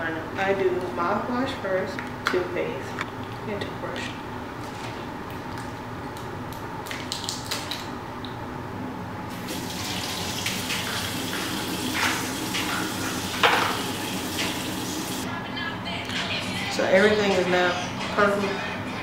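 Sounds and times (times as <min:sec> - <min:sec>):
faucet running into sink: 0:09.3 - 0:15.2.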